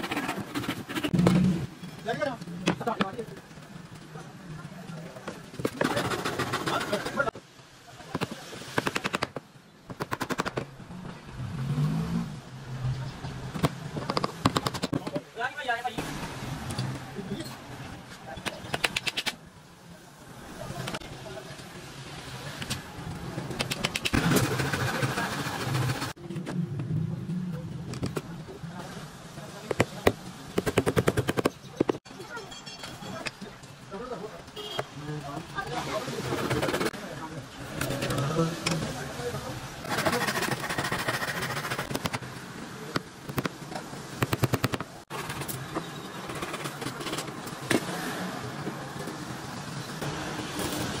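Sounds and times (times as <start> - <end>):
hand saw rasping through wood: 39.9 - 42.0.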